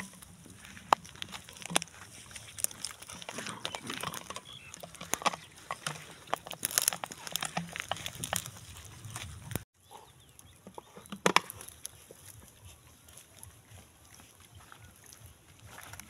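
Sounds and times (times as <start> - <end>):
twigs snapping: 0.0 - 9.6, 10.3 - 12.5.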